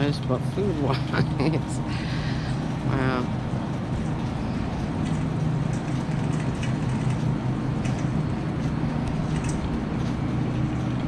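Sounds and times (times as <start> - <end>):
steady low hum: 0.0 - 11.0
cart wheels rumbling on concrete: 2.2 - 11.0
cart basket rattling: 4.8 - 11.0.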